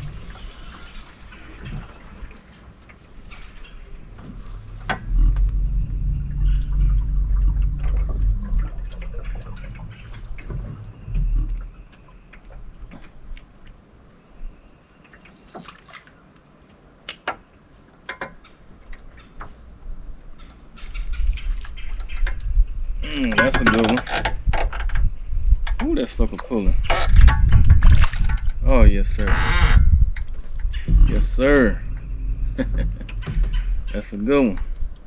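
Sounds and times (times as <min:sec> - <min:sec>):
water lapping against boat hull: 0:00.0 - 0:14.0, 0:18.0 - 0:35.0
low steady hum: 0:00.0 - 0:15.1, 0:25.0 - 0:35.0.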